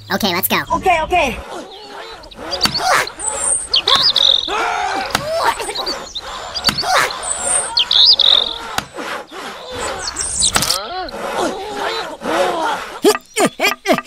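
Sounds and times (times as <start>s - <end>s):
high chirping and trilling calls: 0.0s - 14.0s
sharp knocks: 5.1s - 5.5s, 6.6s - 7.1s.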